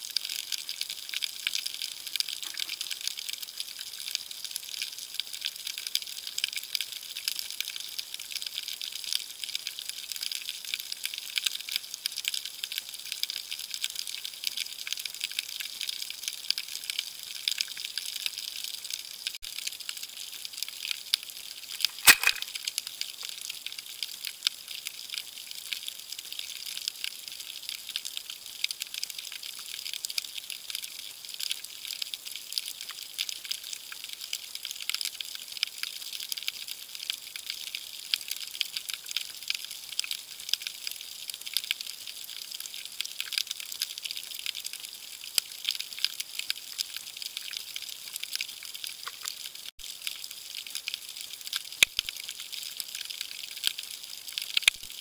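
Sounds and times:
sharp underwater click: 21.9s - 22.5s.

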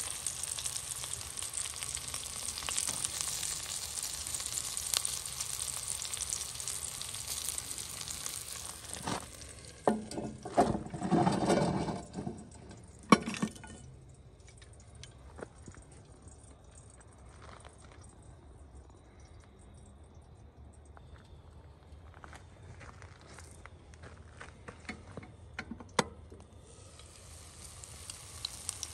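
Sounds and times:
vegetables sizzling in a hot pan: 0.0s - 10.2s, 26.6s - 28.9s
metal clanks on cast-iron pot: 9.8s - 13.9s.

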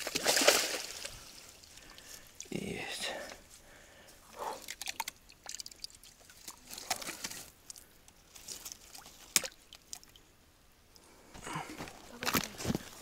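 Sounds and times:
water splashing and dripping: 0.0s - 2.6s, 4.4s - 10.3s.

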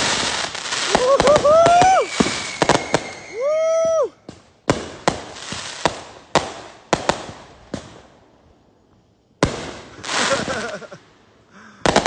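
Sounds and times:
firework bangs: 0.0s - 3.5s, 4.2s - 8.1s, 9.4s - 11.0s, 11.8s - 12.0s
firework whistle: 0.0s - 4.4s.

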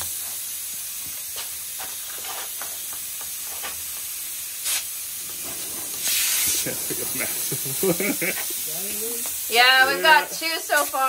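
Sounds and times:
gas hissing from leak: 0.0s - 11.0s
spray bottle squirting: 1.3s - 8.6s.

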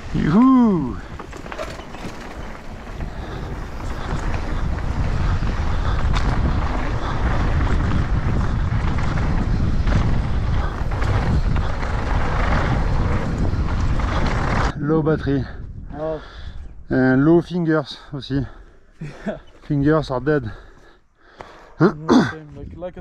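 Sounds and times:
low rumble of tyres: 0.0s - 14.8s
wind buffeting microphone: 0.0s - 17.6s.

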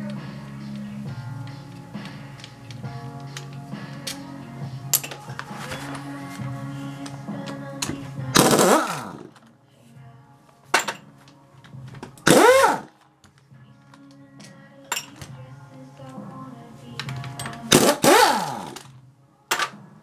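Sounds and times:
impact wrench spinning bolts: 17.0s - 18.9s.

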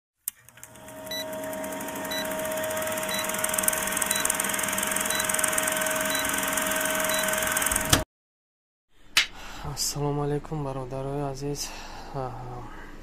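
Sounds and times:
film projector clattering: 0.4s - 8.0s.

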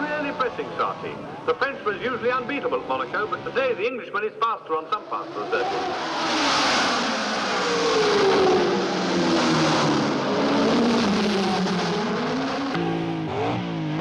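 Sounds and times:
racing car engine running hard: 5.0s - 14.0s.

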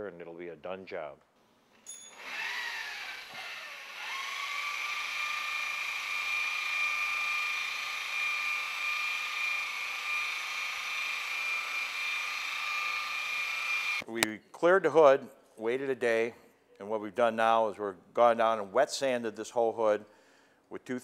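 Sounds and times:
electric polisher whining: 2.2s - 14.0s.

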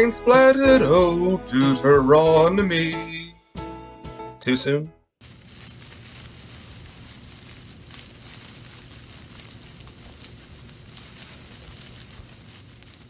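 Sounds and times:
faint crackling: 5.2s - 13.0s
low hum and hiss: 5.2s - 13.0s.

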